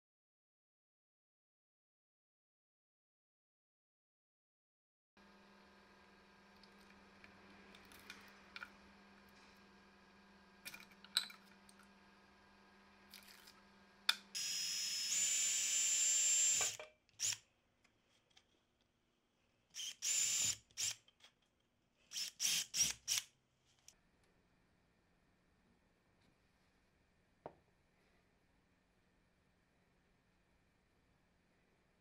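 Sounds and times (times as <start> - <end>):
cordless drill whining: 14.3 - 17.4, 19.7 - 21.0, 22.1 - 23.3.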